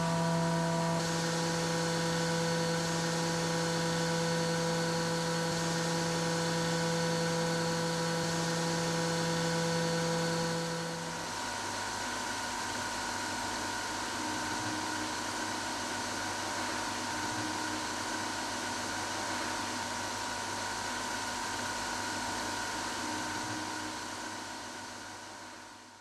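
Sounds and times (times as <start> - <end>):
workshop machinery humming: 0.0 - 1.1.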